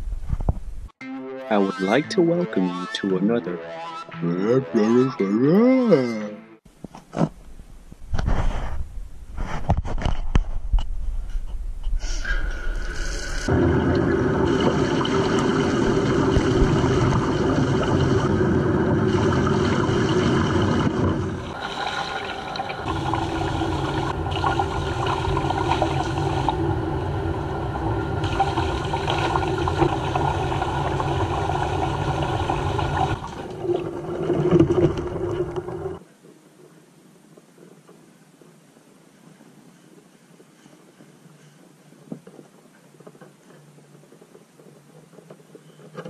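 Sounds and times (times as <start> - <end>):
water splashing: 13.4 - 36.0
water running from faucet into tub: 13.8 - 26.7, 28.2 - 34.0.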